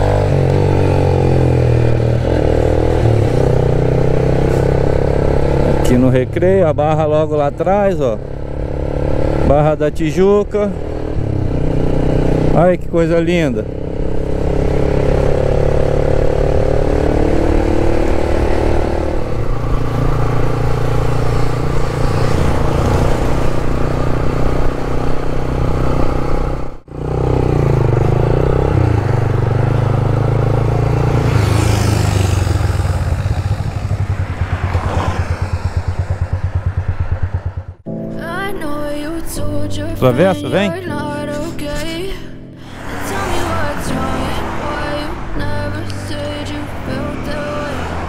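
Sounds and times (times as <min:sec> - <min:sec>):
motorcycle engine running: 0:00.0 - 0:38.0.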